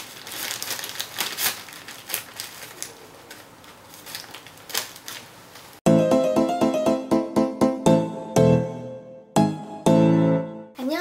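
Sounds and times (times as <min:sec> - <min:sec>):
plastic crinkling: 0:00.0 - 0:05.8.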